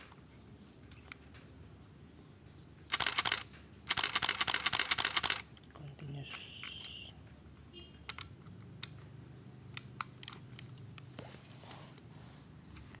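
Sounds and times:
camera controls clicking: 2.9 - 5.5, 9.7 - 10.9.

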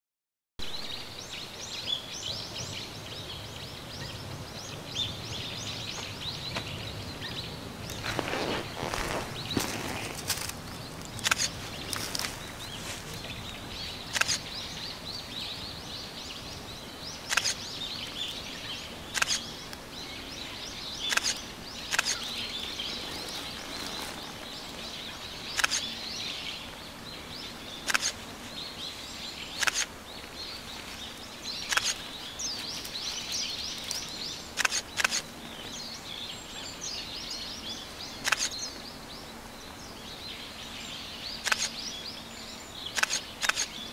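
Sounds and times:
birds chirping: 0.6 - 43.9
sharp clicks: 10.1 - 11.6, 14.1 - 14.4, 17.3 - 17.6, 19.1 - 19.4, 21.1 - 22.3, 25.5 - 25.8, 27.8 - 28.2, 29.6 - 29.9, 31.7 - 32.0, 34.6 - 35.3, 38.2 - 38.6, 41.4 - 41.8, 43.0 - 43.7.

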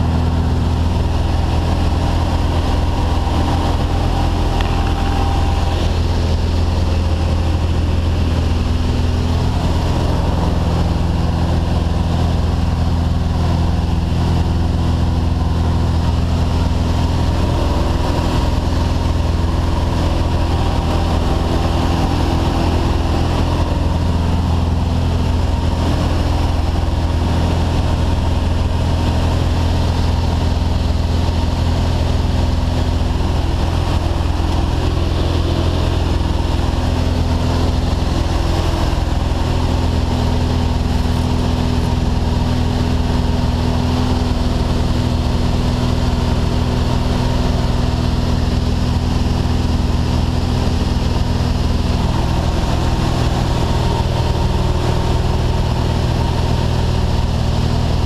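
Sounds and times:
propeller plane engine drone: 0.0 - 58.0
rushing air noise: 0.0 - 58.0.

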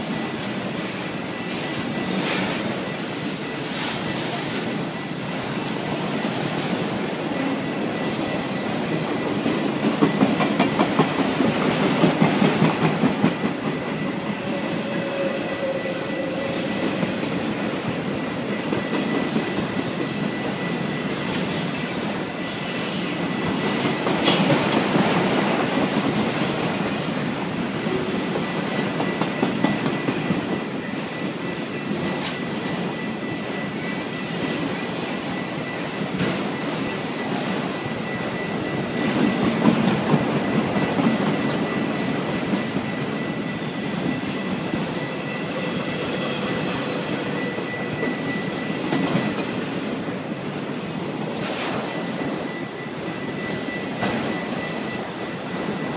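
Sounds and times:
freight train cars rumbling: 0.0 - 55.9
faint high squeal: 14.0 - 17.0, 40.7 - 49.4, 51.4 - 55.9.

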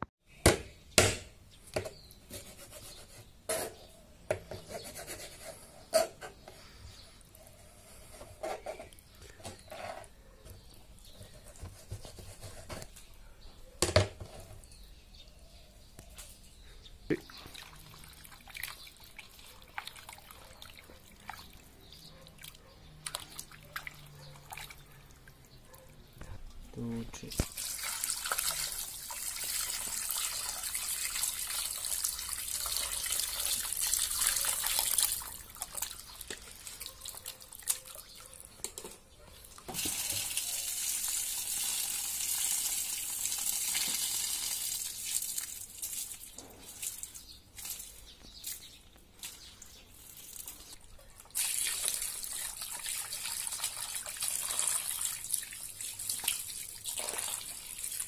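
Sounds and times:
water splashing into steel bowl: 22.4 - 25.3, 27.3 - 37.9, 51.2 - 58.0.

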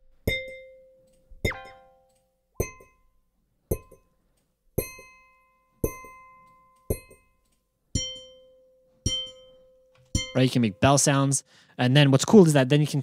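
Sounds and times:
bell-like ringing hammer strikes: 0.3 - 3.0, 3.7 - 4.1, 4.8 - 7.4, 8.0 - 11.0.

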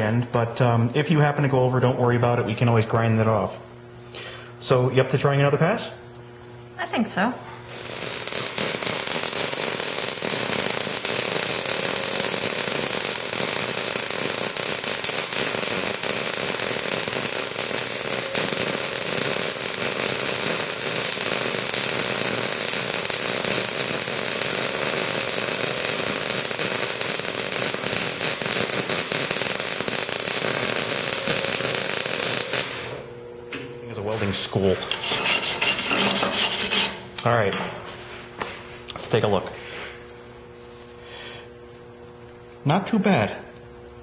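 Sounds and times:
welding arc crackling: 7.6 - 33.2.

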